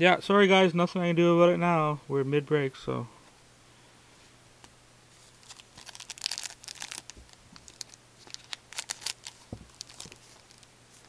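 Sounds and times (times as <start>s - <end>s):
foil wrapper crinkling and tearing: 5.2s - 11.0s.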